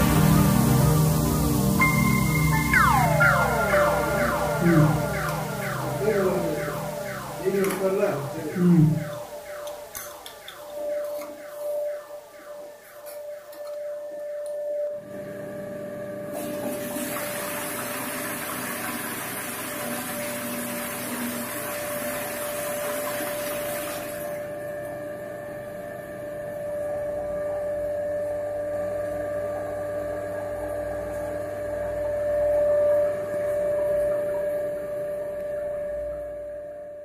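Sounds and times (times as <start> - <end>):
toilet flushing: 0.0 - 3.0, 16.3 - 24.5
steady tone: 0.0 - 14.7.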